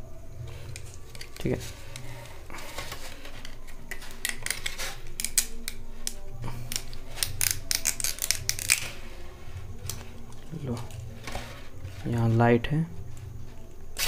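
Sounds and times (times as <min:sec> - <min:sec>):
plastic clicking and snapping: 0:03.4 - 0:08.9.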